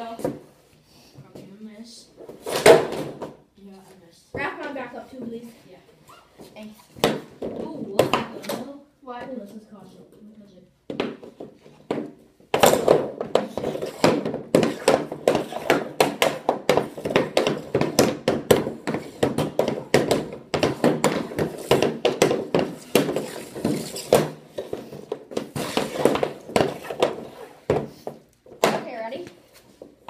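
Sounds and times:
hockey stick and pucks clacking: 2.3 - 3.4, 6.9 - 8.7, 10.9 - 30.0.

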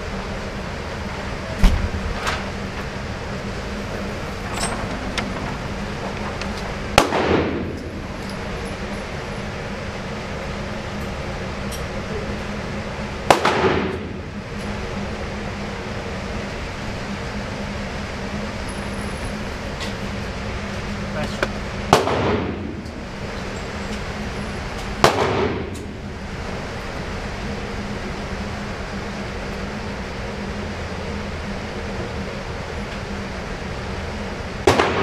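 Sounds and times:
steady hum: 0.0 - 35.0
gunshots indoors: 6.9 - 7.9, 13.2 - 14.2, 21.9 - 22.8, 25.0 - 25.9, 34.7 - 35.0.

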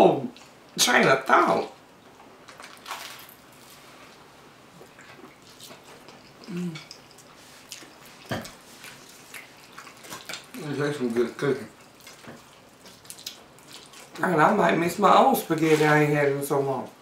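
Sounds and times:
people eating with mouth sounds: 2.2 - 14.6
voiced mm: 6.4 - 7.0.

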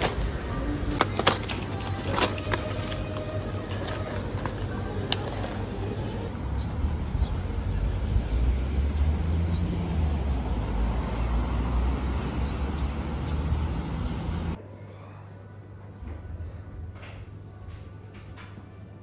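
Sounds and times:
traffic rumble: 0.0 - 14.6
street noise: 0.0 - 19.0.

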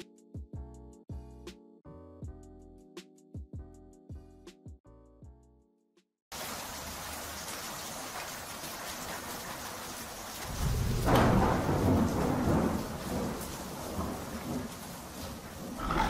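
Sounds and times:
steady rain: 6.3 - 16.0
thunderclap rumbling: 10.3 - 16.0.

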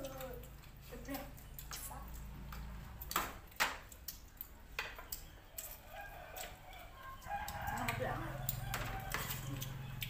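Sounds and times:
rooster crowing: 5.6 - 10.0
spoons clinking on plates: 7.8 - 9.8.

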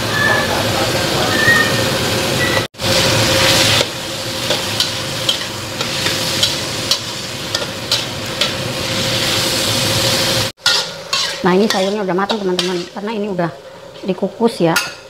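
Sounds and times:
vegetables sizzling in a wok: 1.7 - 15.0
metal spatula scraping wok: 10.6 - 13.1.

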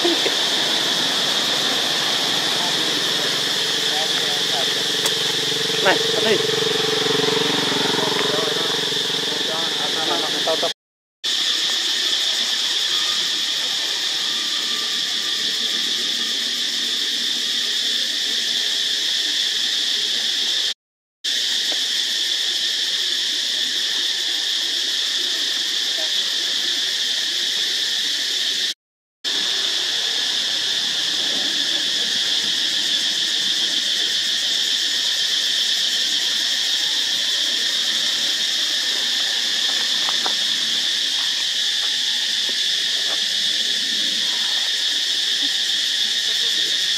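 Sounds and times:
insects droning in chorus: 0.0 - 46.9.

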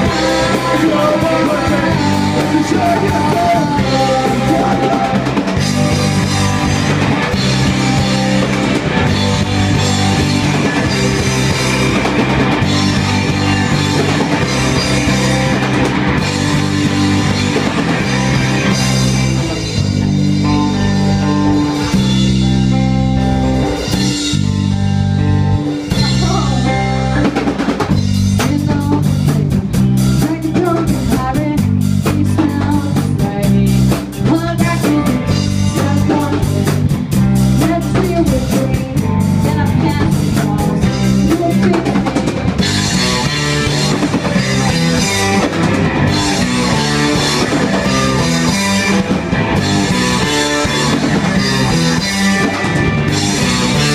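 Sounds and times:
punk rock band playing: 0.0 - 53.9.

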